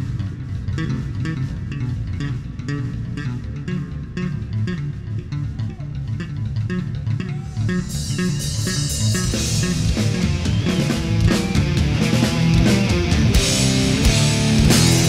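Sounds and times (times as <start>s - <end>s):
heavy metal instrumental: 0.0s - 15.0s
cymbals crashing: 7.6s - 11.3s.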